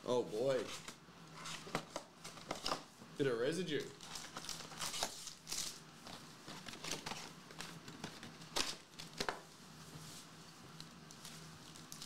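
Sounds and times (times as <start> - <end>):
foil packs crinkling: 4.0 - 5.8.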